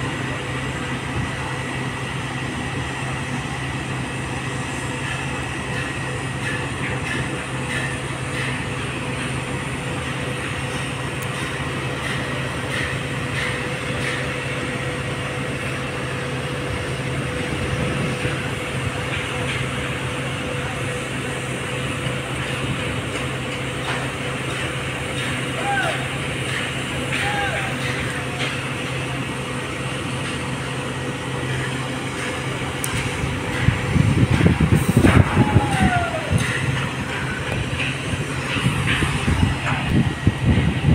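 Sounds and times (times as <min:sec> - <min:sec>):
machinery drone: 0:00.0 - 0:40.9.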